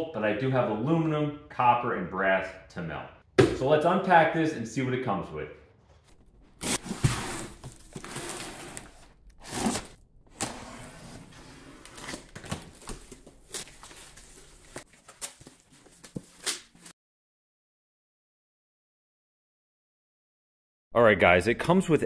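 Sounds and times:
cardboard rustling and tearing: 6.1s - 16.9s.

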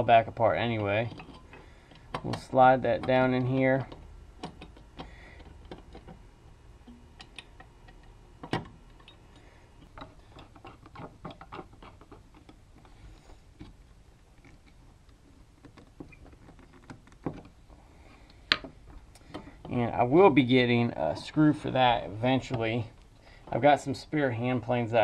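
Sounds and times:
metal parts clicking and tapping: 0.3s - 17.6s, 18.2s - 19.9s.

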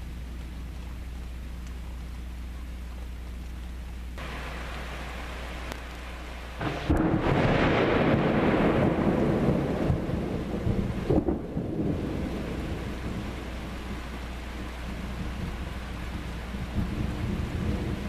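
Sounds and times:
steady rain hissing: 0.0s - 18.0s
thunder crack and rumble: 6.6s - 18.0s.

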